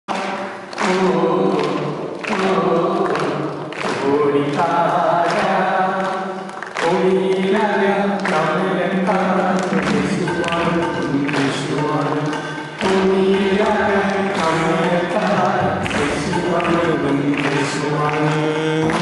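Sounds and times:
man singing into a microphone: 0.2s - 19.0s.

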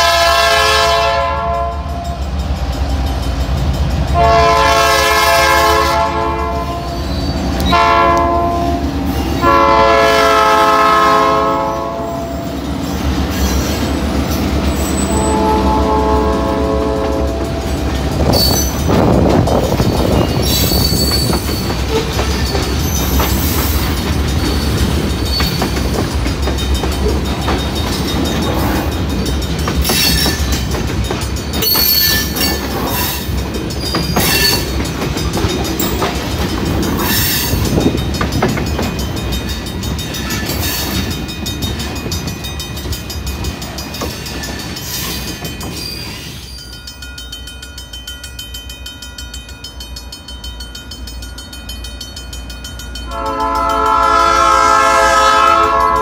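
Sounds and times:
train horn blasts: 0.0s - 2.2s, 4.1s - 7.0s, 7.6s - 12.5s, 15.0s - 17.8s, 53.1s - 56.0s
train rumbling past: 0.0s - 56.0s
wheels clacking over rail joints: 16.8s - 46.8s.

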